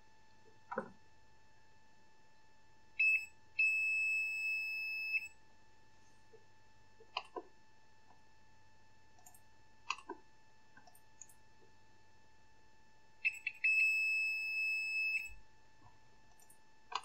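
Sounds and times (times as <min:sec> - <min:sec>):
multimeter continuity beeps: 0:03.0 - 0:05.4, 0:13.2 - 0:15.4.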